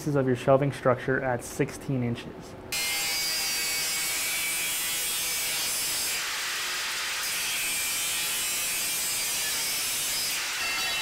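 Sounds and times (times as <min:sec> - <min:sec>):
angle grinder cutting metal: 0:02.8 - 0:11.0.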